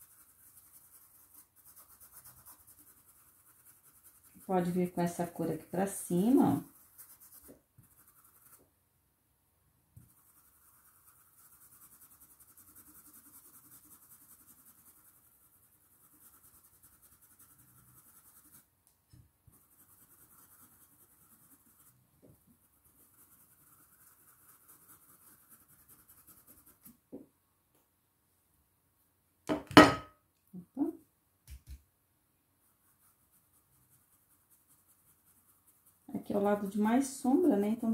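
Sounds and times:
brush scrubbing on fabric: 0.0 - 8.6, 10.0 - 18.7, 19.5 - 27.0, 32.6 - 37.9.

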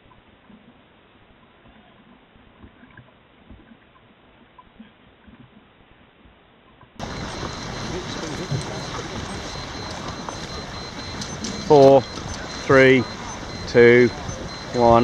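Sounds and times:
small waves slapping: 7.0 - 15.0
water lapping: 7.0 - 15.0.

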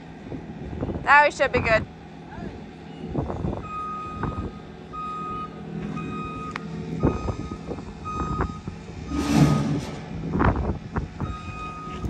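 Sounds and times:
truck engine running: 0.0 - 12.0
truck reversing alarm beeping: 2.8 - 12.0.

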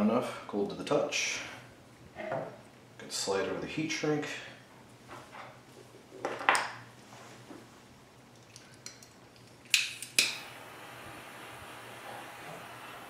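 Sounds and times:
faint steady hiss: 0.0 - 13.0.

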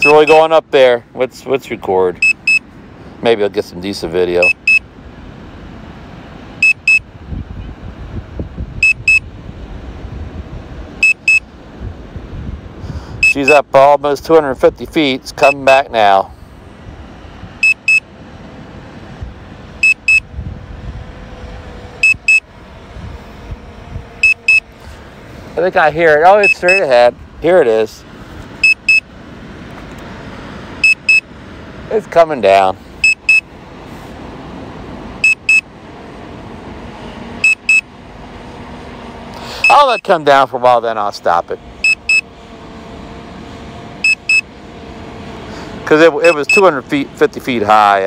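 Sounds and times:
electronic double beeps: 6.6 - 7.0, 11.0 - 11.4, 17.6 - 18.0, 19.8 - 20.2, 22.0 - 22.4, 24.2 - 24.6, 26.4 - 26.8, 28.6 - 29.0, 30.8 - 31.2, 35.2 - 35.6, 37.4 - 37.8, 41.8 - 42.2, 44.0 - 44.4.

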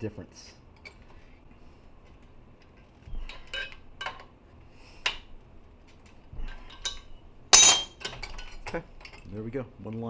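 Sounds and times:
wrench clinking on metal fitting: 7.6 - 8.1.

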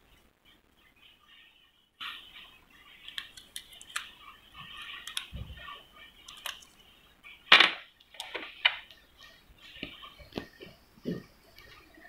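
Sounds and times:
fingers clicking and scraping battery: 6.2 - 6.8.

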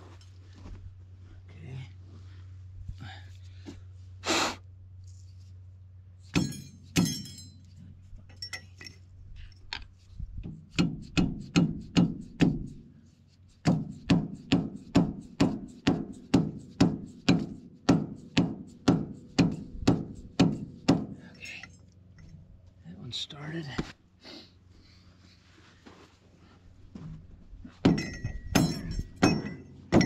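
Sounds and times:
hammer blows on metal: 27.8 - 30.0.

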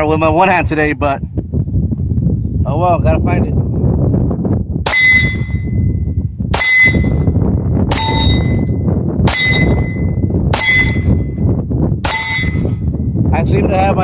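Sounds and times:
wind rumble on microphone: 0.0 - 14.0
pistol shots with metallic ring: 4.9 - 5.9, 6.6 - 7.3, 7.9 - 11.4, 12.0 - 12.8.

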